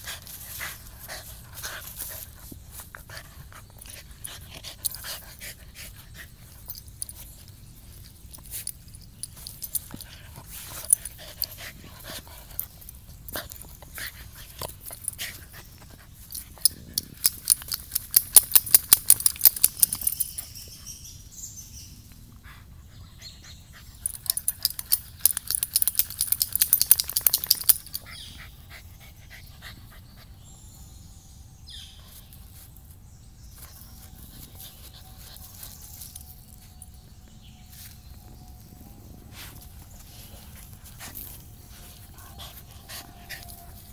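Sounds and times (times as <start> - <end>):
dog rubbing on dirt and leaves: 32.2 - 37.0, 37.7 - 43.9.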